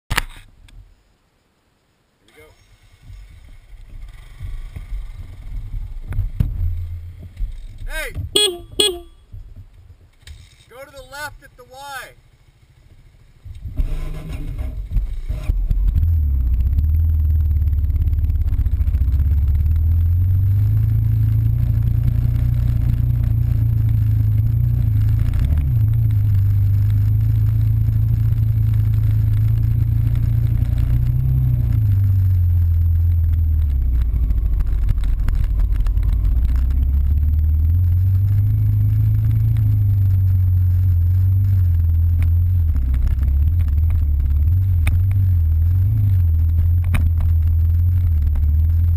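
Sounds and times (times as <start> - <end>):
dirt bike engine: 3.0 - 9.6.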